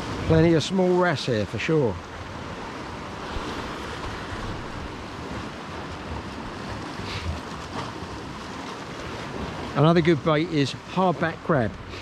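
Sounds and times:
surf washing against rocks: 0.0 - 12.0.

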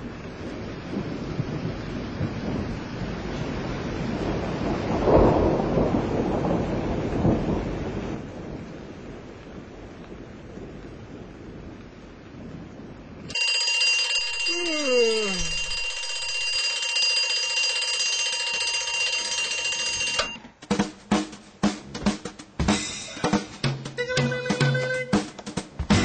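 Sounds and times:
loud bright ringing: 13.3 - 20.3
falling tone: 14.2 - 16.6.

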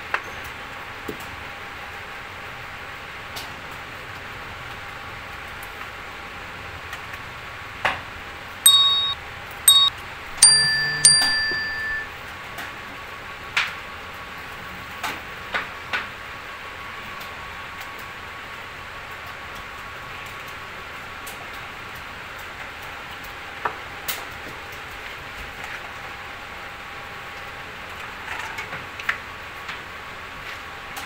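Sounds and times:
electronic bell dings: 8.7 - 12.1.

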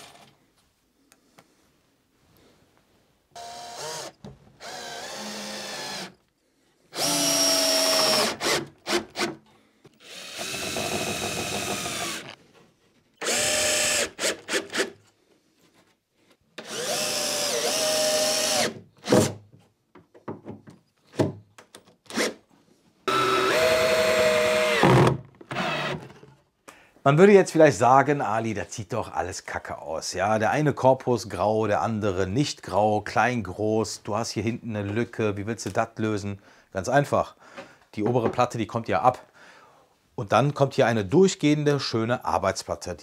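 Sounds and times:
cordless drill driving screws: 3.4 - 6.2, 6.9 - 9.4, 10.0 - 12.4, 13.2 - 15.0, 16.6 - 19.3, 22.1 - 22.4, 23.1 - 26.1.

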